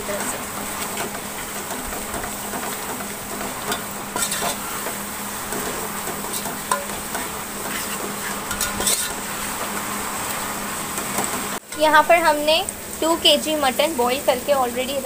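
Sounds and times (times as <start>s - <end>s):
food sizzling in oil: 0.0s - 15.0s
metal spatula scraping pot: 1.0s - 9.6s
spatula knocking pot: 5.5s - 7.8s.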